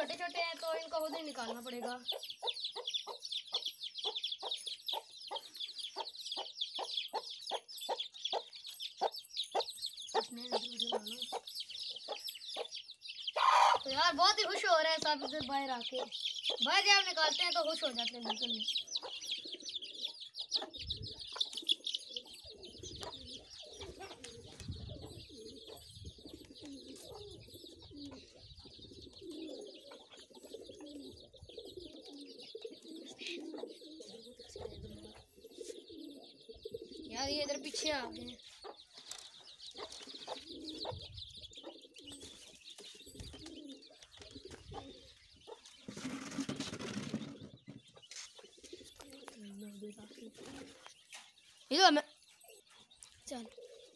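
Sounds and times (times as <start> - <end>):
chicks peeping: 0.0 - 53.9
pigeons cooing: 13.3 - 38.4, 39.0 - 51.2, 52.5 - 53.9.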